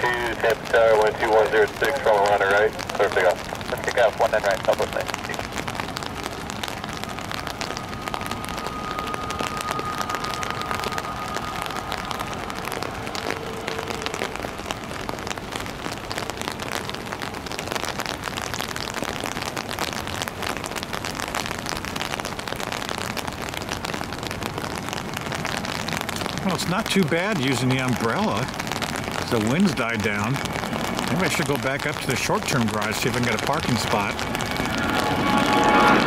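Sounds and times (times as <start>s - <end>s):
faint steady whine: 0.0s - 18.2s, 22.7s - 36.0s
heavy rain on an umbrella: 0.0s - 36.0s.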